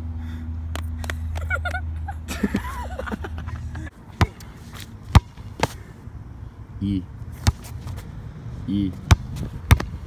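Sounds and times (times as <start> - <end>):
basketball bouncing on asphalt: 4.2 - 5.8, 7.3 - 8.1, 8.9 - 10.0.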